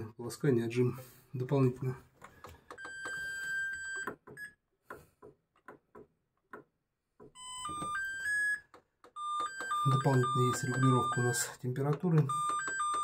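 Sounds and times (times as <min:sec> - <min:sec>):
electronic beep: 0:09.2 - 0:11.6.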